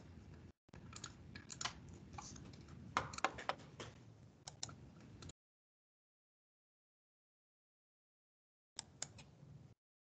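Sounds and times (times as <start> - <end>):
keyboard typing: 0.8 - 5.3.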